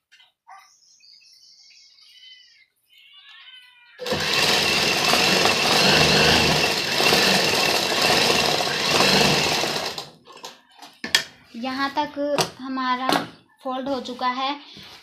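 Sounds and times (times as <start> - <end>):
sewing machine running: 4.0 - 10.2.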